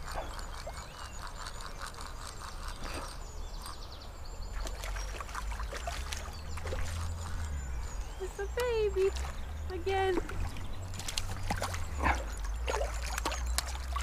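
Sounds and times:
fishing reel clicking: 0.0s - 3.8s
fish splashing in water: 4.5s - 7.7s, 8.6s - 14.0s.

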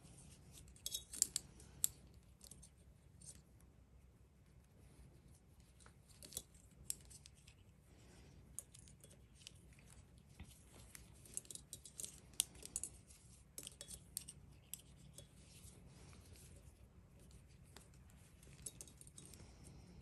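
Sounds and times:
metal knitting needles clicking: 0.5s - 3.4s, 11.2s - 15.6s, 17.2s - 19.4s.

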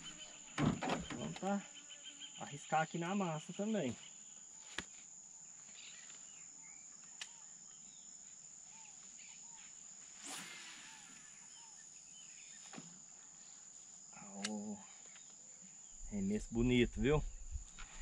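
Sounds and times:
bird chirps: 0.0s - 4.3s, 10.7s - 12.8s
insect trill: 0.0s - 17.9s
fishing rod swish: 10.2s - 11.2s.

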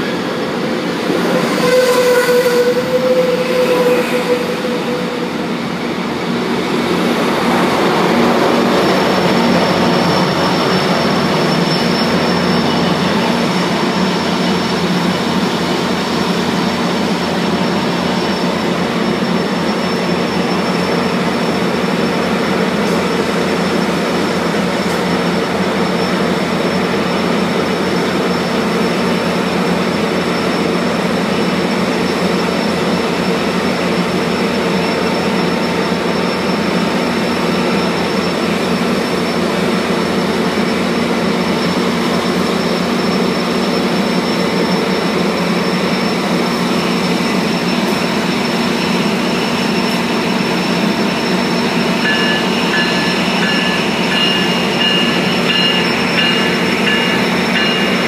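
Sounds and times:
thin high whine: 0.0s - 22.2s, 40.3s - 58.0s
diesel locomotive engine drone: 0.0s - 58.0s.

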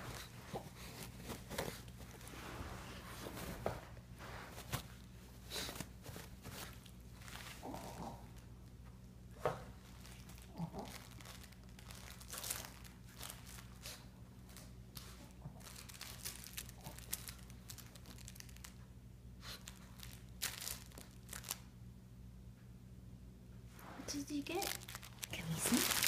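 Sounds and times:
paper crinkling and rustling: 9.8s - 18.8s, 24.1s - 26.0s.

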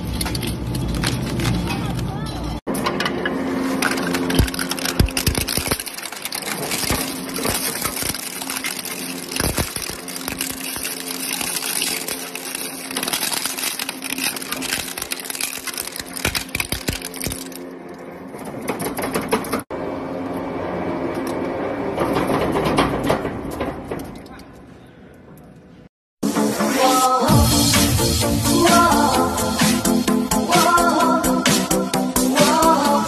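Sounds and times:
duller machine noise: 0.2s - 23.0s
shredder cracking plastic: 3.8s - 17.6s.

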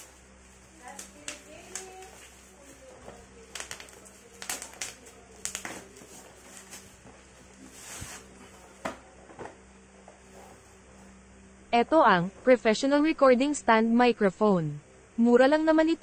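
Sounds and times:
plastic bag crinkling and rustling: 0.0s - 8.4s.

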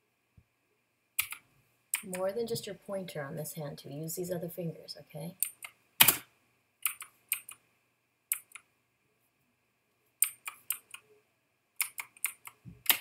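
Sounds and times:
keyboard key clicks: 1.2s - 1.4s, 11.8s - 13.0s.

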